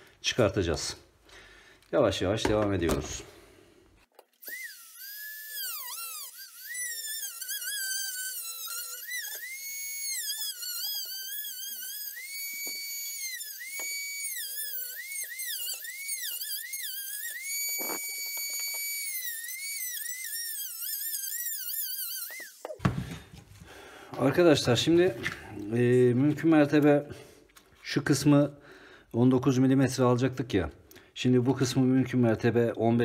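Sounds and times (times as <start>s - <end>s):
rotary tool cutting plastic: 4.1s - 23.5s.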